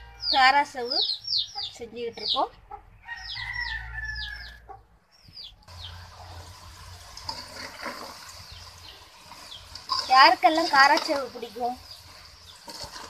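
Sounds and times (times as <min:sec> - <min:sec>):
chickens clucking and peeping: 0:00.8 - 0:10.1
dough frying in hot oil: 0:05.6 - 0:13.0.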